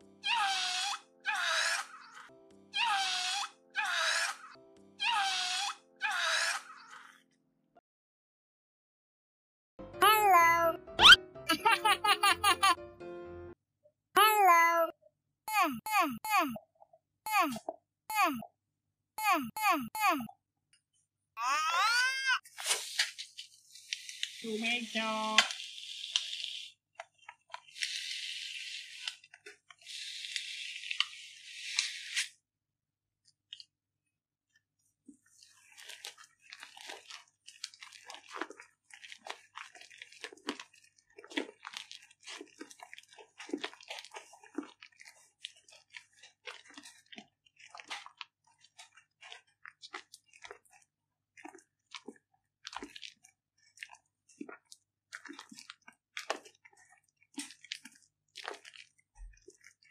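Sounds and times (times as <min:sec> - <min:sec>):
slime squelching and popping: 0:35.6 - 0:59.9.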